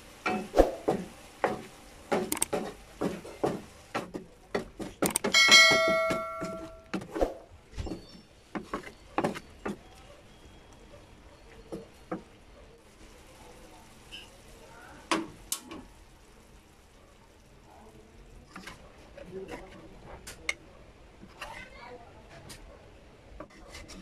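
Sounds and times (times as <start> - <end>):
bell-like ding: 5.4 - 6.8
wooden spatula scraping a wok: 7.9 - 10.0, 18.3 - 20.4, 21.2 - 22.7, 23.3 - 24.0.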